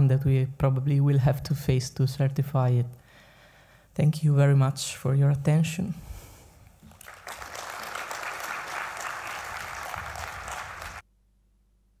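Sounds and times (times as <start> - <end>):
audience applauding: 6.8 - 11.0.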